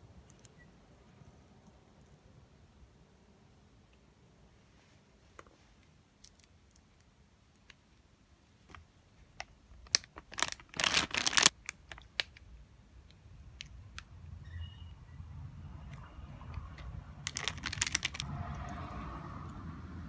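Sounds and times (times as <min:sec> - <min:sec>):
plastic packet crinkling: 0:09.8 - 0:12.4, 0:17.2 - 0:18.4.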